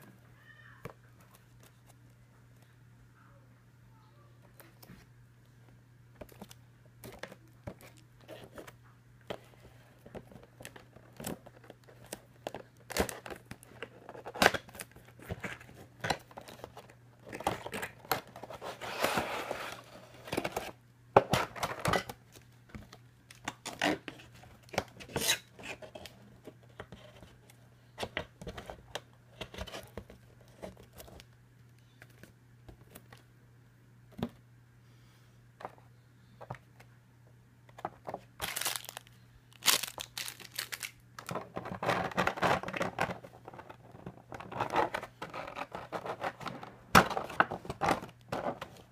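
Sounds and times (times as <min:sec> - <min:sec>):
cardboard and plastic packaging handled: 0:06.2 - 0:33.3, 0:37.7 - 0:48.9.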